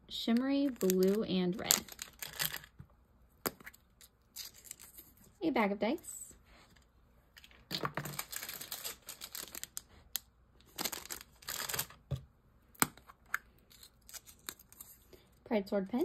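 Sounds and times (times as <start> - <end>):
plastic bag crinkling: 0.6 - 2.7, 7.6 - 9.9, 10.6 - 12.0.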